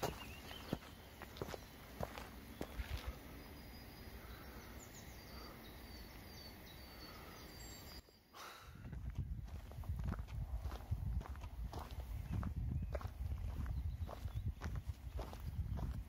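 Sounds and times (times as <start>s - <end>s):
footstep crunches: 0.0s - 3.3s, 8.8s - 16.0s
small bird chirping: 0.0s - 8.4s, 11.6s - 16.0s.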